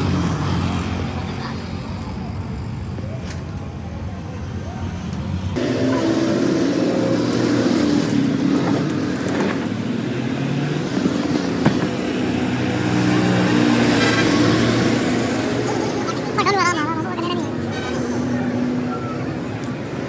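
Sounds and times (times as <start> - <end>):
traffic noise: 0.0 - 20.0
vehicle engines running: 0.0 - 20.0.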